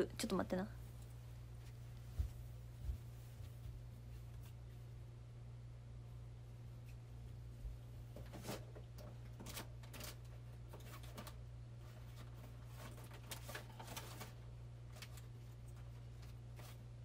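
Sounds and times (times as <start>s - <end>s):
steady low hum: 0.0s - 17.0s
clicks and knocks of rummaging: 12.0s - 16.8s.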